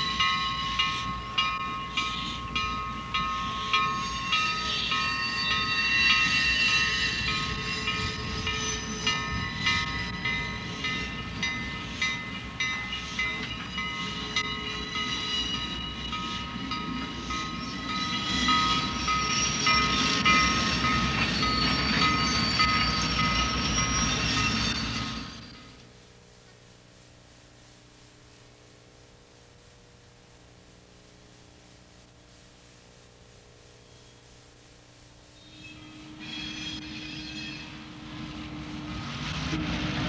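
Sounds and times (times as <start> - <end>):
train cars rumbling: 0.0 - 25.8, 35.6 - 40.0
wheels squealing: 17.1 - 25.8, 35.4 - 39.2.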